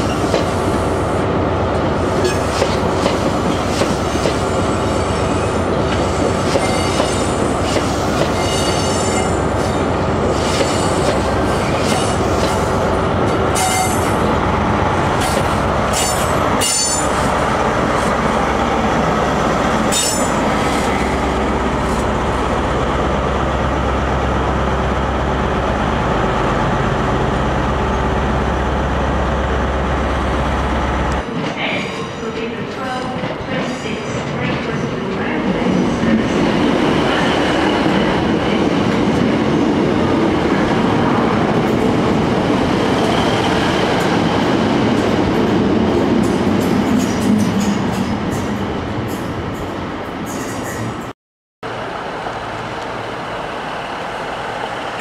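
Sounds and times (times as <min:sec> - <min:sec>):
train wheels squealing and clicking: 0:06.2 - 0:12.6, 0:50.3 - 0:51.1.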